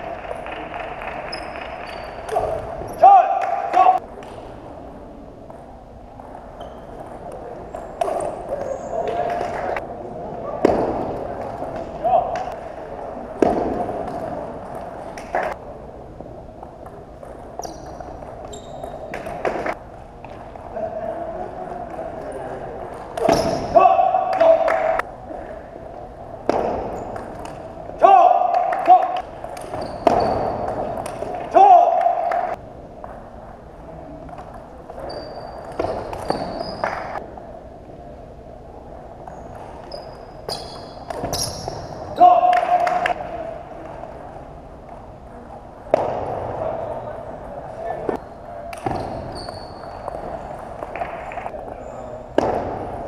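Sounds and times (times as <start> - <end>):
murmur of the hall: 0.0 - 53.0
shoe squeaks: 1.3 - 3.0, 6.5 - 7.1, 7.7 - 9.2, 17.5 - 19.1, 23.2 - 23.8, 26.9 - 27.3, 29.6 - 30.9, 34.9 - 37.2, 39.2 - 42.2, 48.1 - 50.6.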